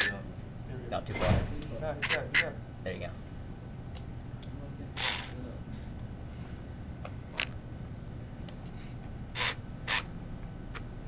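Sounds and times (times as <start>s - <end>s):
small electric motor whirring: 5.0s - 5.4s, 9.3s - 10.1s.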